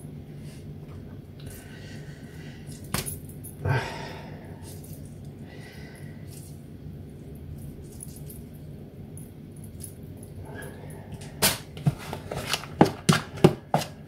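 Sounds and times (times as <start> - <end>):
steady low hum: 0.0 - 14.0
spoon scraping plastic tub: 11.8 - 14.0.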